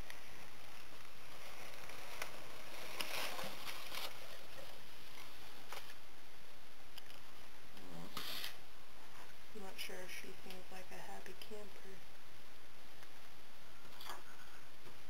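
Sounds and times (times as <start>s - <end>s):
bag and packing paper rustling: 0.7s - 6.0s.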